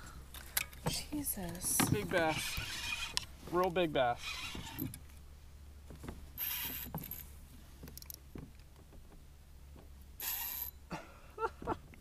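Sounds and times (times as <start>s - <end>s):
rod handling sounds: 0.4s - 5.2s
fishing reel drag buzzing: 2.1s - 3.3s, 4.1s - 5.0s, 6.4s - 7.0s, 10.2s - 10.8s.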